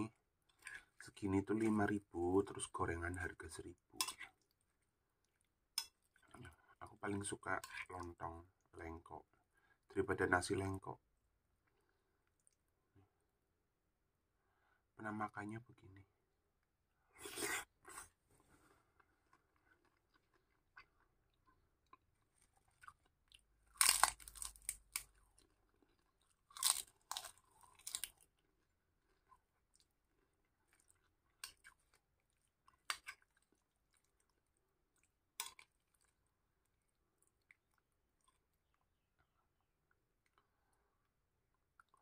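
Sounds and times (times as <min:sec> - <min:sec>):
chewing crunchy food: 0:17.2 - 0:40.5, 0:41.5 - 0:42.0.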